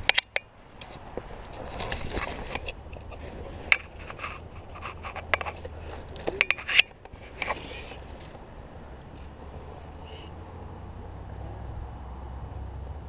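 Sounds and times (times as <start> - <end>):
knocks and scrapes on rocks: 0.0 - 9.9.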